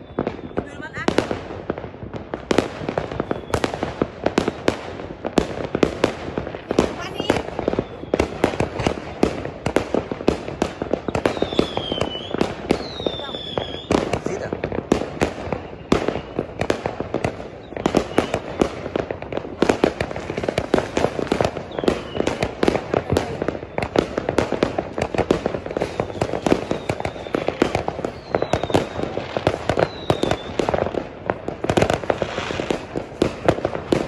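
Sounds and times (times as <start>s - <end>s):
falling firework whistles: 0.0s - 0.9s, 3.0s - 4.8s, 6.8s - 9.7s, 10.5s - 14.4s, 15.2s - 18.9s, 19.9s - 31.0s
fireworks bangs and crackling: 0.0s - 34.0s.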